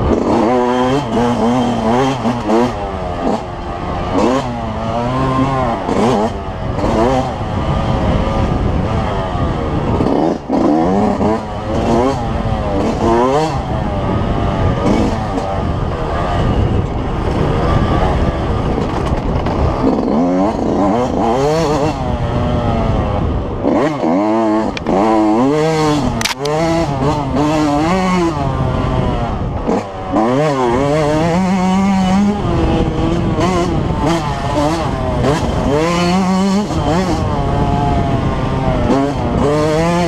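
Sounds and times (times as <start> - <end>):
motorcycle engine revving hard: 0.0 - 40.0
sharp click: 26.2 - 26.5.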